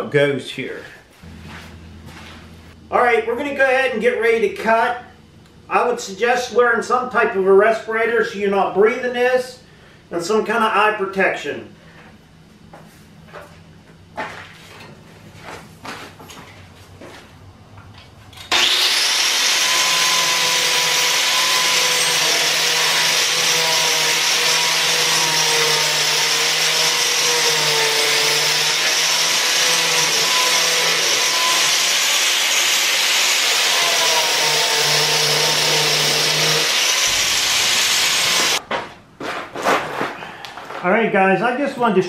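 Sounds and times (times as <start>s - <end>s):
angle grinder cutting brick: 18.5s - 38.6s.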